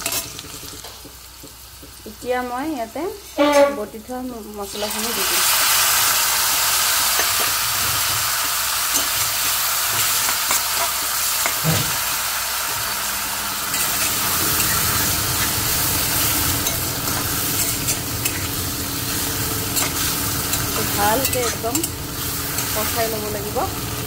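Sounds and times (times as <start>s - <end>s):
food sizzling in hot oil: 0.0s - 24.0s
metal spatula scraping pan: 3.2s - 3.9s, 8.9s - 22.9s.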